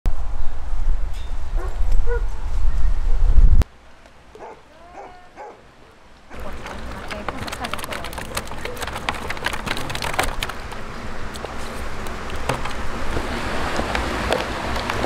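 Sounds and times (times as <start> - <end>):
water splashing and trickling: 4.4 - 15.0.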